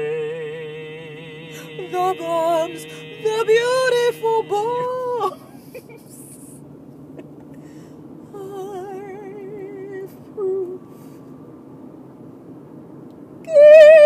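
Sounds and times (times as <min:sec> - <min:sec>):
woman humming with vibrato: 0:00.0 - 0:05.6, 0:13.5 - 0:14.0
faint background noise: 0:00.0 - 0:14.0.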